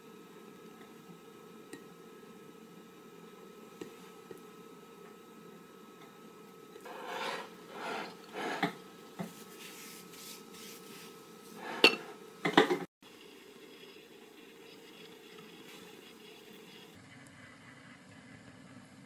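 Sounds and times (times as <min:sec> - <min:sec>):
dishes scraping: 0:06.8 - 0:08.8, 0:11.6 - 0:12.9
ceramic dishes clinking: 0:11.8 - 0:12.6.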